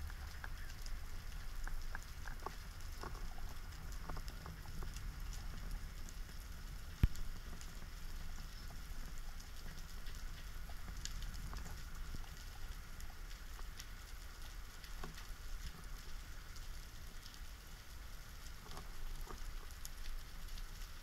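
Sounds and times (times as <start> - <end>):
faint clicks and crackles: 0.0 - 21.0
low rumble of moving water: 0.0 - 21.0.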